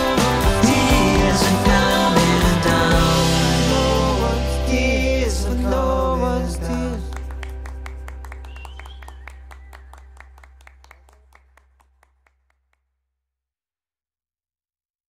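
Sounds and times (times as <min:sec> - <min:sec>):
held low bass note: 0:00.7 - 0:10.6.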